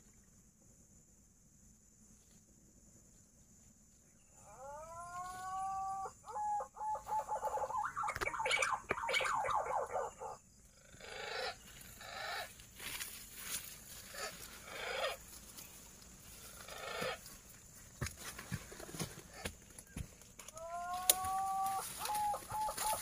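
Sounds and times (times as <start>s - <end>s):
whistled pigeon call: 5.6s - 10.4s, 20.6s - 23.0s.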